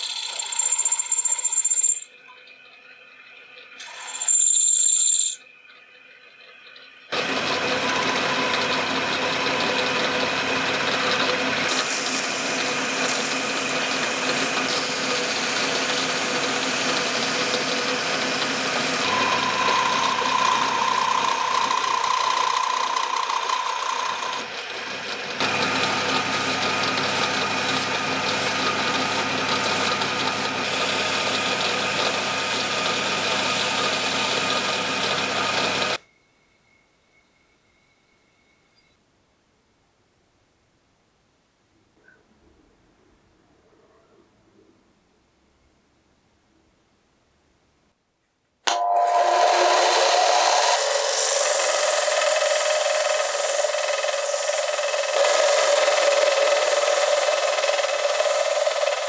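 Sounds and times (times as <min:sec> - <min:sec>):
clear steady ringing tone: 0:00.0 - 0:03.0, 0:04.0 - 0:05.7, 0:36.0 - 0:39.2, 0:48.7 - 0:49.7
lathe machine whine: 0:00.0 - 0:36.0, 0:48.7 - 0:59.0
hiss of metal cutting: 0:11.7 - 0:17.2.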